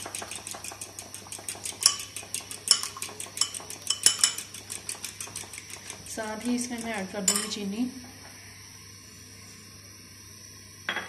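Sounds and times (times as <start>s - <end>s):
utensil clinking on glass bowl: 1.8s - 5.4s, 6.6s - 7.6s.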